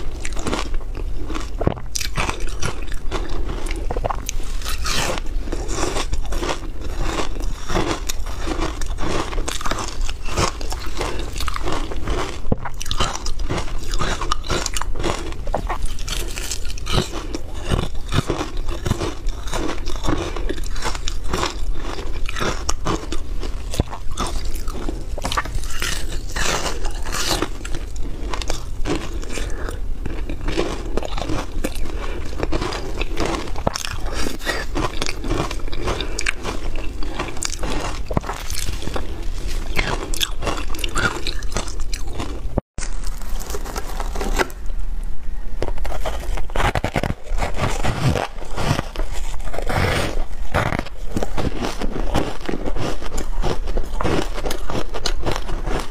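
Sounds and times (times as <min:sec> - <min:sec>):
ice crunching being chewed: 0:00.0 - 0:44.8, 0:45.6 - 0:55.9.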